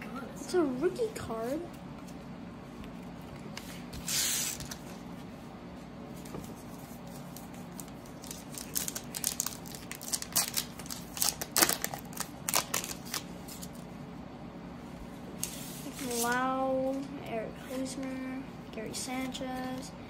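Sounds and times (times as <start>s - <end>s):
wrapper and cards crinkling: 7.2s - 13.8s
wrapper ripping: 8.1s - 13.3s.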